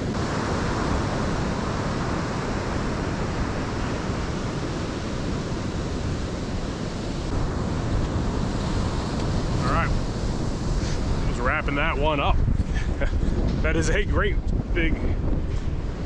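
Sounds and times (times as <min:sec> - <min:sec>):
surf breaking on beach: 0:00.0 - 0:16.0
wind on microphone: 0:00.0 - 0:16.0.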